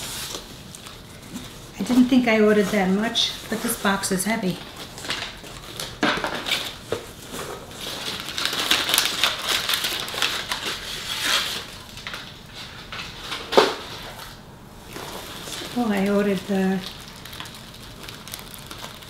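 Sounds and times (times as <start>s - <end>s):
packing material rustling: 0.0s - 19.0s.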